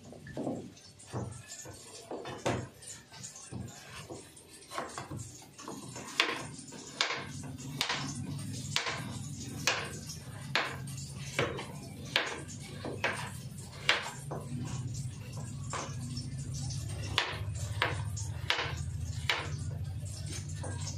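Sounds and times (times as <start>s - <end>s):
knife chopping on plastic board: 3.6s - 10.8s, 11.4s - 14.5s, 17.0s - 19.6s.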